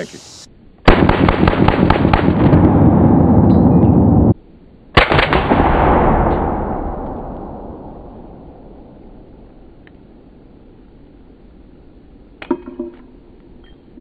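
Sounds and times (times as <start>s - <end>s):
explosive blasts rumbling: 0.9s - 4.4s, 5.0s - 9.8s.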